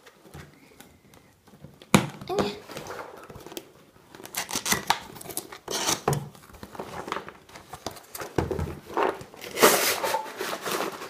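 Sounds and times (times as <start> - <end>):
cardboard tearing: 2.8 - 8.2.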